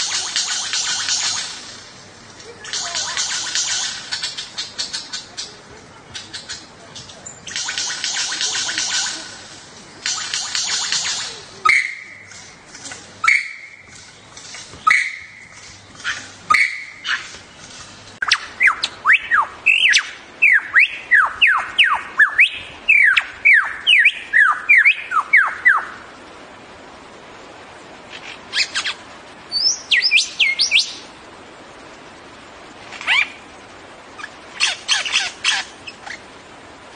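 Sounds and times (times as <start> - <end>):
lyrebird singing: 0.0 - 1.8, 2.5 - 26.0, 28.1 - 31.1, 34.1 - 36.3.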